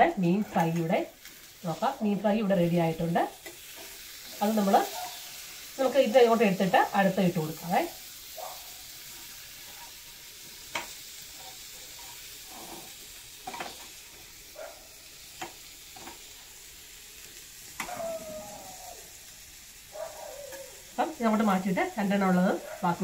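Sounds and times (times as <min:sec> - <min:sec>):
fish sizzling in oil: 0:00.0 - 0:23.0
spatula scraping a pan: 0:03.0 - 0:05.8, 0:08.2 - 0:14.2.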